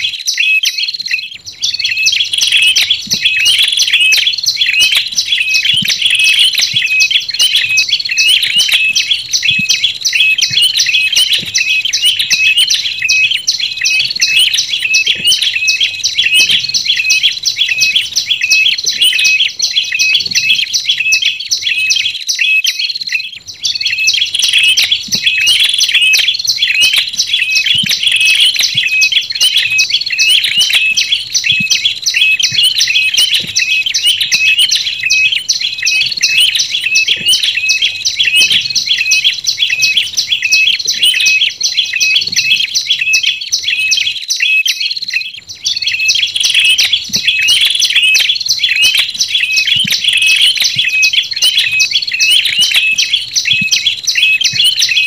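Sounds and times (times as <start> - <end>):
tailorbirds chirping: 1.4 - 22.2, 23.6 - 44.2.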